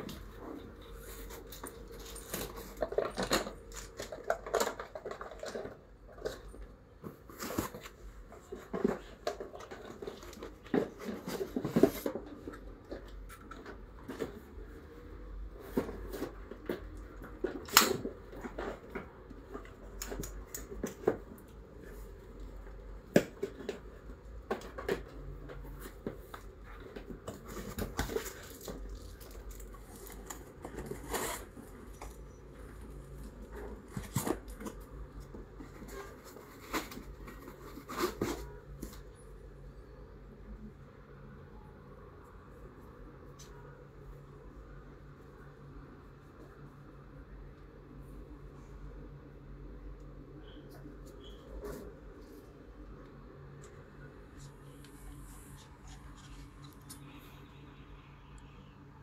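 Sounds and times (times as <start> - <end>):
packaging rustling and scraping: 0.0 - 39.2, 54.2 - 57.2.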